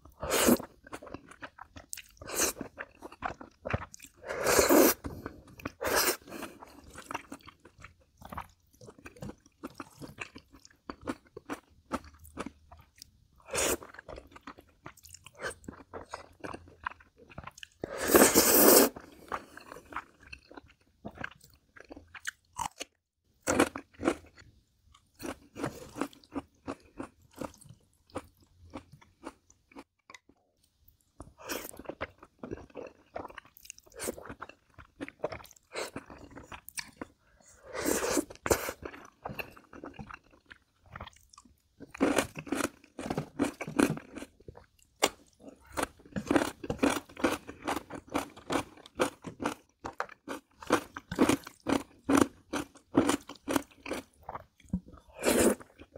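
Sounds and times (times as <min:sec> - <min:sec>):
person chewing and biting: 0:00.2 - 0:22.9, 0:37.7 - 0:55.9.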